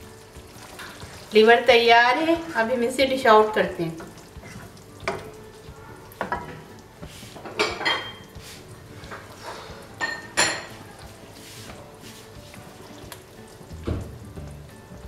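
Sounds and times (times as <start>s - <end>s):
ladle clinking against metal pot: 7.5s - 8.3s.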